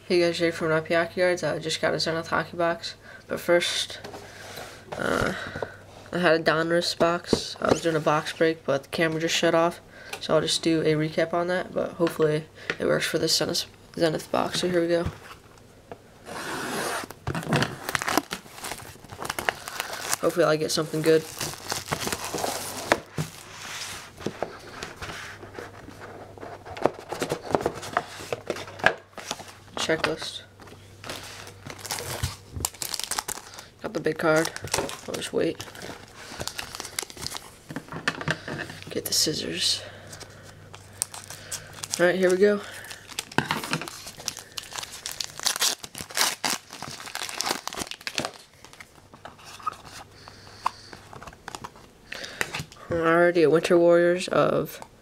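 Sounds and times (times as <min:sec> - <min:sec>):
cards rustling: 0:16.4 - 0:52.8
cardboard box rustling: 0:16.8 - 0:30.1
wrapper crinkling and tearing: 0:16.9 - 0:23.5, 0:31.0 - 0:37.6, 0:40.1 - 0:50.0.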